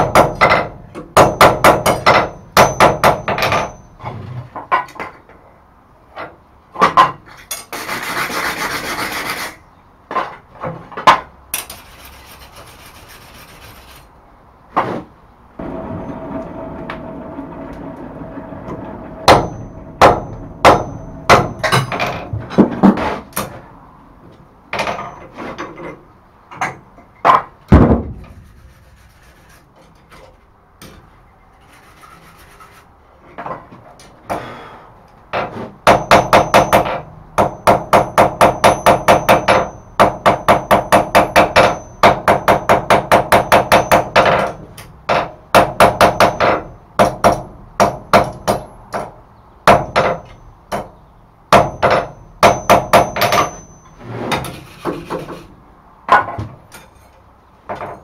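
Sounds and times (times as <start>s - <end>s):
hammer striking steel on anvil: 0.0s - 3.9s, 19.3s - 22.3s, 35.9s - 44.6s, 51.5s - 54.0s.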